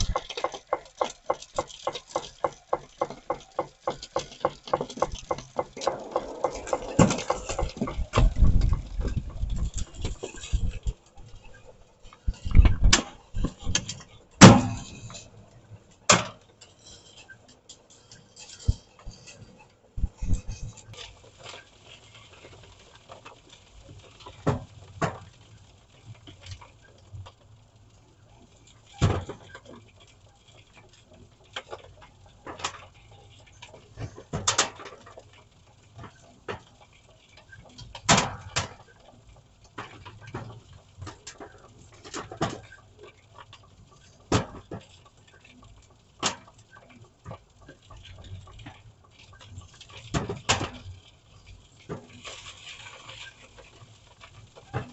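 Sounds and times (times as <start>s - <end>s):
sharp knocks: 0.0s - 8.6s
stones rattling in rotating drum: 0.0s - 11.7s.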